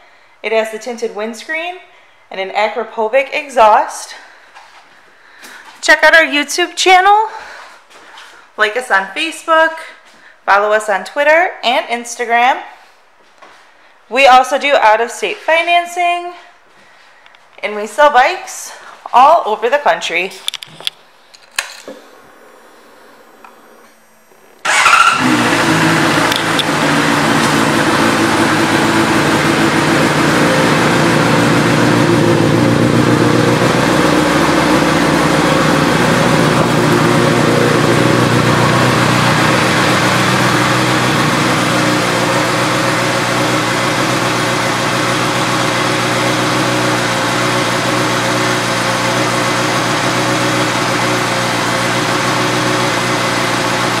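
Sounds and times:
motorcycle engine starting and idling: 21.4s - 54.0s.

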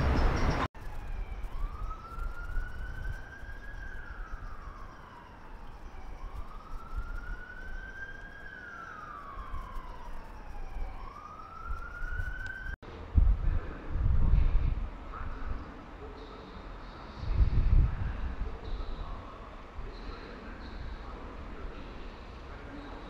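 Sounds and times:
emergency siren wailing: 0.0s - 12.8s.

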